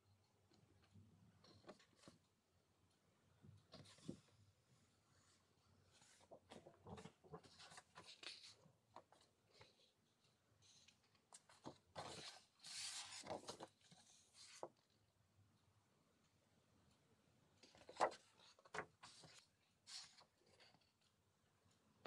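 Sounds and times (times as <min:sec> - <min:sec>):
paper sheets rustling: 0:06.0 - 0:09.8, 0:11.3 - 0:14.8, 0:17.7 - 0:20.8.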